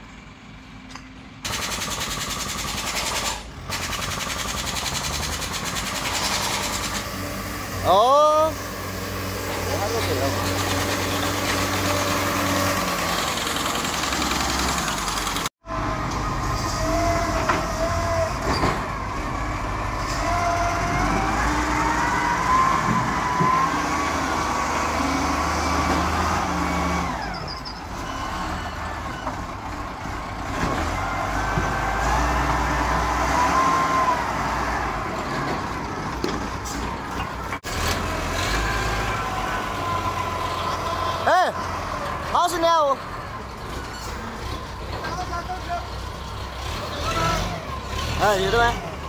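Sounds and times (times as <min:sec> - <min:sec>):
diesel engine under load: 0:00.0 - 0:49.0
loader scooping soil and rock: 0:08.5 - 0:41.1.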